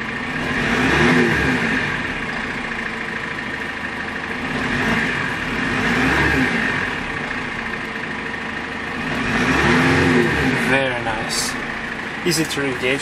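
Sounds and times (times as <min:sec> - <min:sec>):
diesel engine revving: 0:00.0 - 0:13.0.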